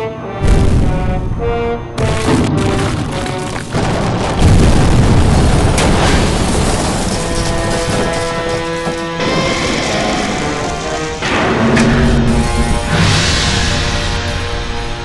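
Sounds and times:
dramatic orchestral music: 0.0 - 4.6, 5.6 - 15.0
deep booms: 0.4 - 8.1.

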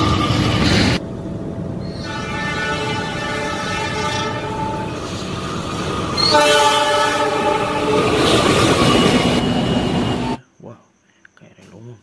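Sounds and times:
train rumbling: 0.0 - 10.4
locomotive air horn blasts: 2.0 - 4.9, 6.2 - 8.2.

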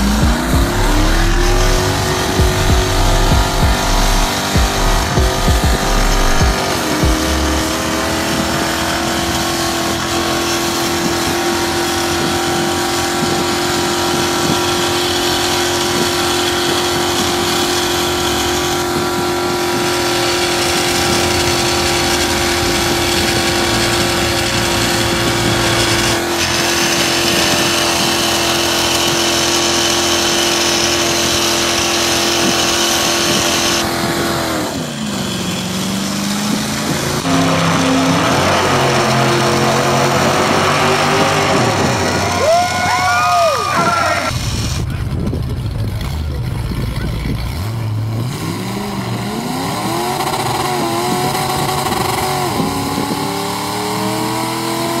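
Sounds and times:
small electric motor whining: 0.0 - 42.4.

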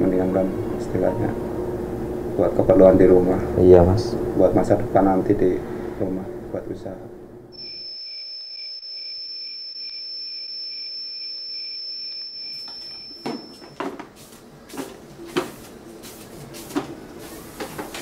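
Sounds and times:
high-pitched insect trill: 7.6 - 13.7
broom sweeping hard floor: 13.3 - 18.0.

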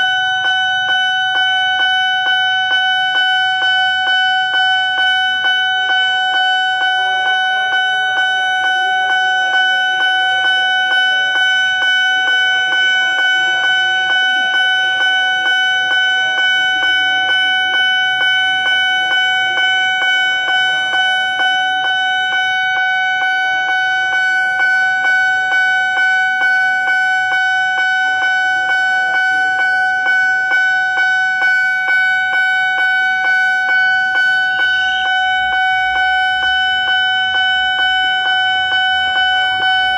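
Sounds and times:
level crossing warning bell: 0.0 - 39.9.

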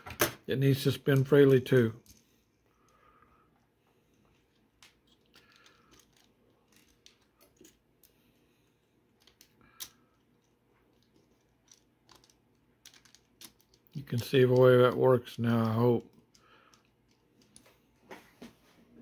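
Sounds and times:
plastic parts clicking: 4.4 - 8.2, 9.1 - 14.8.

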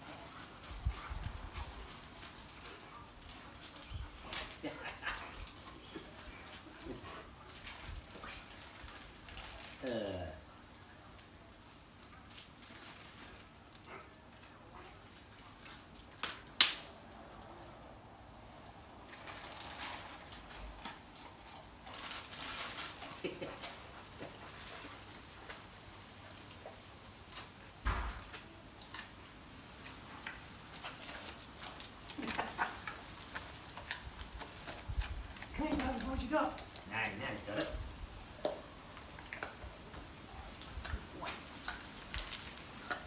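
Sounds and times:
wrapping paper crinkling: 0.0 - 43.0.

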